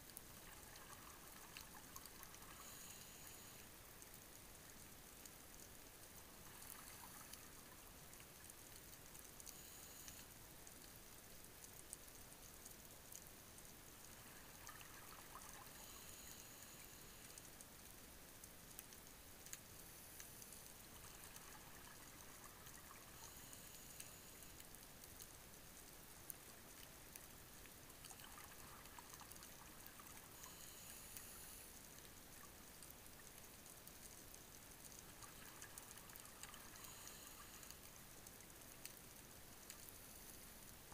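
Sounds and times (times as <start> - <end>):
faint clicks: 0.0 - 40.9
underwater hiss: 2.3 - 3.8, 9.5 - 10.3, 14.1 - 17.5, 19.9 - 24.6, 28.3 - 31.9, 35.1 - 37.9.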